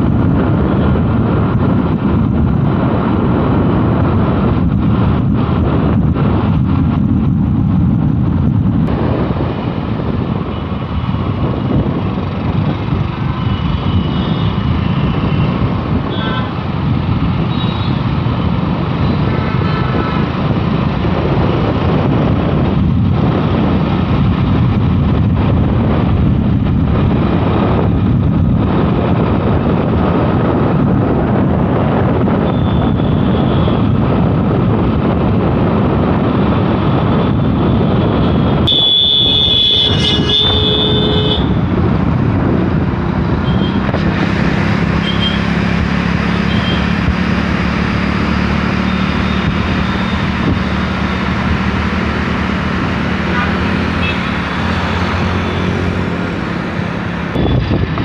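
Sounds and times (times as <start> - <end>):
traffic noise: 0.0 - 58.0
wind rushing over microphone: 0.0 - 58.0
vehicle horn: 16.1 - 16.6, 17.5 - 18.0, 38.3 - 41.6, 43.4 - 43.8, 45.0 - 45.4, 46.5 - 46.9, 53.2 - 54.5
short horn toots: 38.7 - 41.5.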